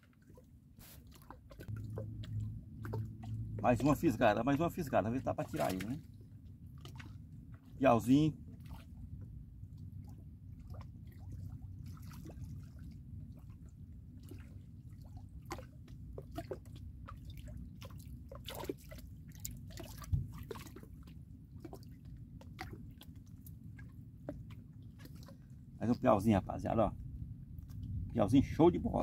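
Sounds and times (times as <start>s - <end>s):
water splashes and drips: 0.0s - 29.0s
low rumble: 1.6s - 5.4s, 26.4s - 29.0s.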